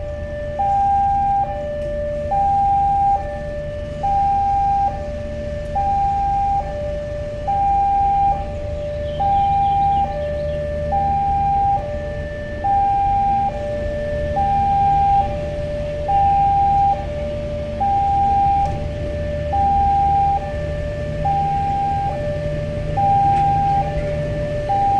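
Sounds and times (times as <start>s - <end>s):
level crossing two-tone alarm: 0.0s - 24.9s.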